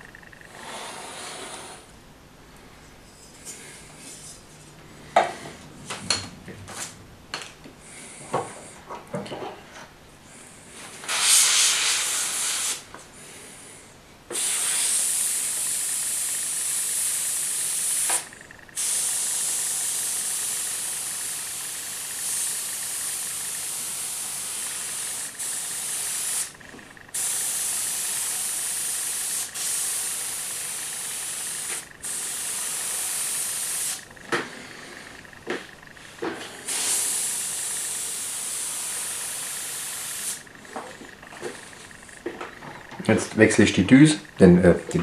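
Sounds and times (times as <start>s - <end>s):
airbrush hissing: 0.5s - 1.9s, 11.0s - 12.9s, 14.3s - 35.2s, 36.0s - 40.5s.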